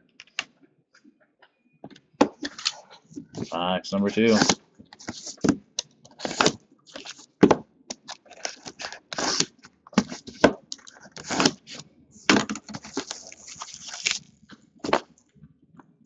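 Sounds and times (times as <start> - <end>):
plastic wrap crinkling and tearing: 6.1 - 7.3, 8.0 - 11.8, 12.7 - 15.1.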